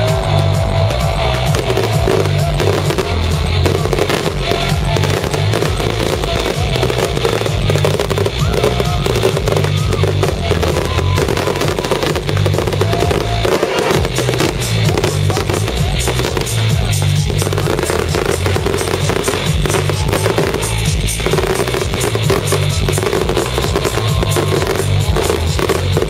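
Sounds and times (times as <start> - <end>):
electronic dance music: 0.0 - 26.0
fireworks going off: 0.0 - 26.0.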